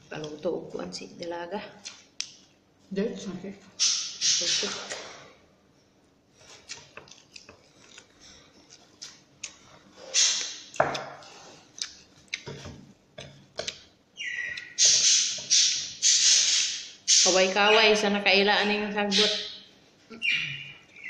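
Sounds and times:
person chewing with mouth smacks: 6.4 - 12.7.

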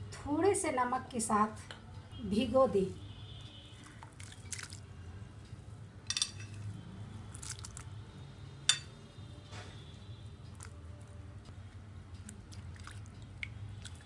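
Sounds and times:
wet splashes in a bowl: 3.8 - 4.8, 7.3 - 7.9, 12.2 - 14.0
clinks against glass: 6.1 - 6.6.

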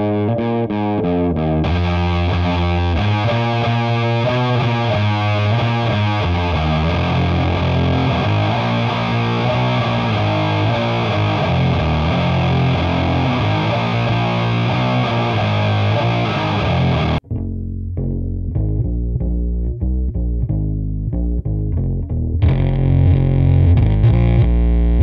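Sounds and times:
distorted electric guitar riff: 0.0 - 17.3, 22.4 - 25.0.

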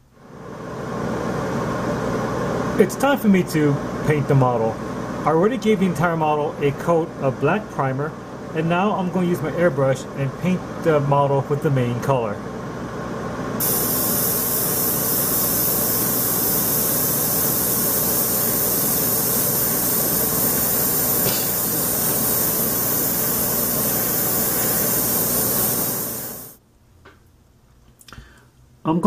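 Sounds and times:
airbrush spraying hiss: 13.6 - 26.6.

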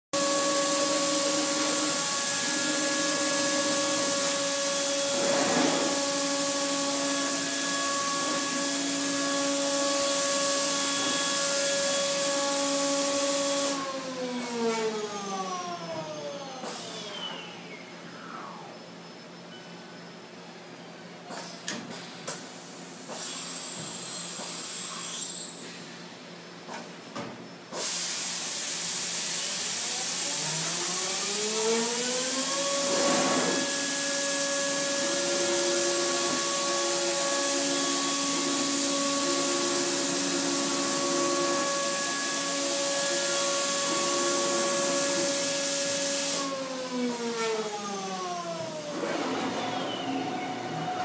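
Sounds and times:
loud hiss: 4.8 - 7.3.

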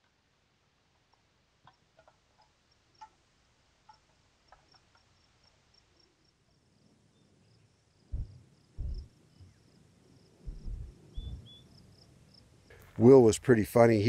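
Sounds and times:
crickets chirping: 3.9 - 13.3
dull low thumps: 8.1 - 9.1, 10.4 - 11.5.

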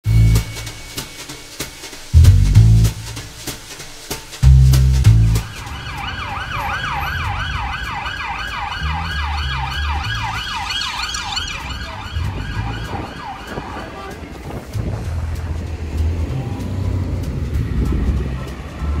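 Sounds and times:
heavy music beat: 0.0 - 19.0
street traffic rumble: 0.0 - 19.0
emergency siren yelping: 5.4 - 14.4.

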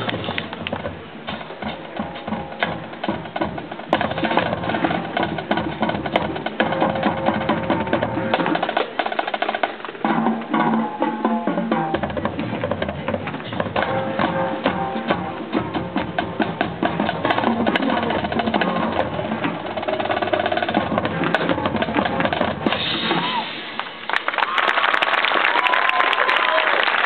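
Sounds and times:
marching band playing: 0.0 - 24.0
drumline rhythm: 0.0 - 24.1
crowd applause: 23.1 - 27.0.

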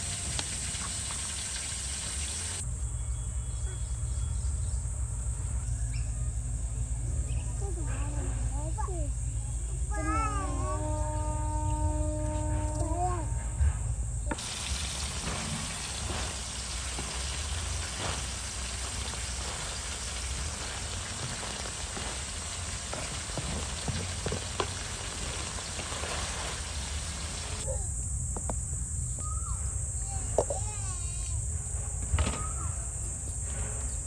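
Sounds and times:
meat sizzling in a pan: 0.0 - 2.6, 14.4 - 27.6.

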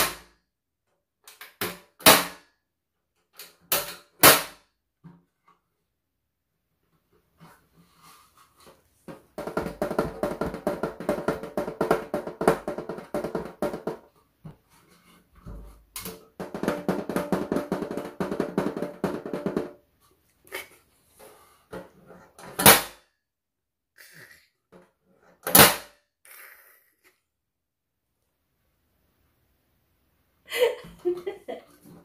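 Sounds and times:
fingers drumming on metal tray: 16.2 - 19.8.

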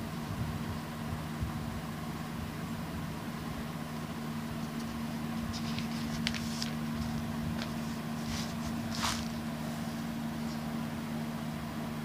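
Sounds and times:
book pages rustling: 4.5 - 10.7.

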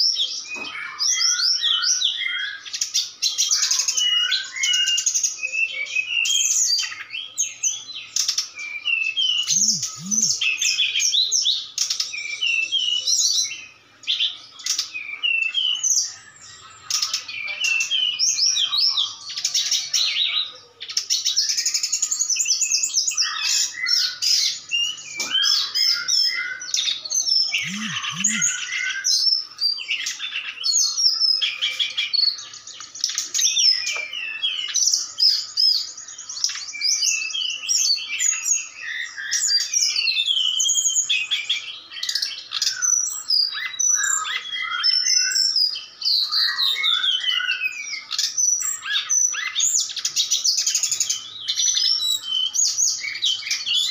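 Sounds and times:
bird chirping and whistling: 7.6 - 11.2, 21.5 - 29.4, 42.6 - 53.9.

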